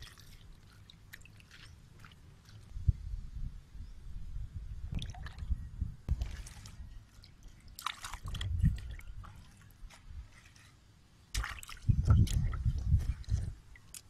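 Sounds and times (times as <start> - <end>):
water splashing and dripping: 0.0 - 2.7, 6.1 - 9.8, 11.3 - 14.0.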